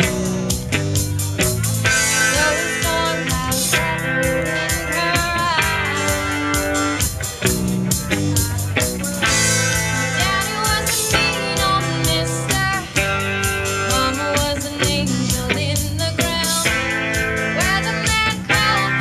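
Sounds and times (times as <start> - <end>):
bass guitar: 0.0 - 19.0
drum kit beat: 0.0 - 19.0
electric guitar: 0.0 - 19.0.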